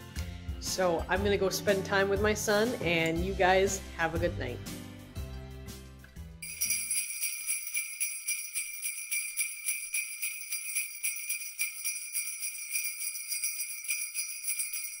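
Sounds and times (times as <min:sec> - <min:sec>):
sleigh bells jingling: 0:06.4 - 0:15.0.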